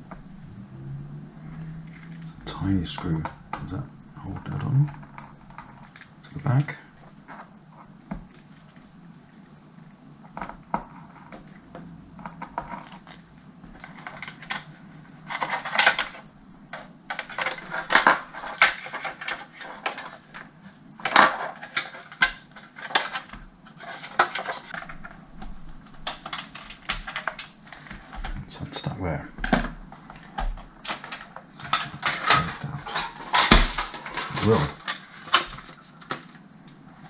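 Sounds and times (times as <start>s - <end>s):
clicks and scrapes of plastic parts: 10.3s - 36.5s.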